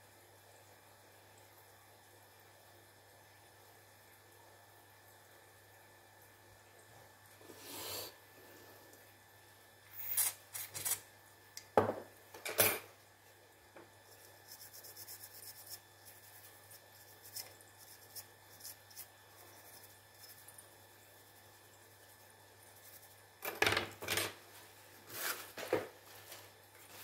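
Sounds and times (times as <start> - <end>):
scratchy rub on circuit board: 14.1 - 20.4.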